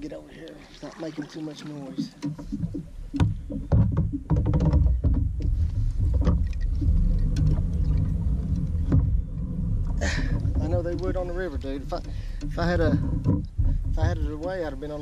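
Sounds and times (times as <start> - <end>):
low uneven rumble: 0.0 - 15.0
knocks and bumps: 1.2 - 15.0.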